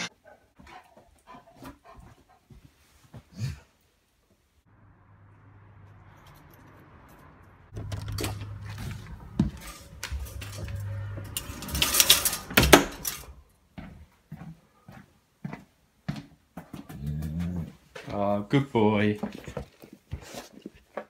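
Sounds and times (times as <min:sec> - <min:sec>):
footsteps indoors: 0:00.6 - 0:03.4, 0:07.8 - 0:21.0
knocks and rustling: 0:07.7 - 0:13.4.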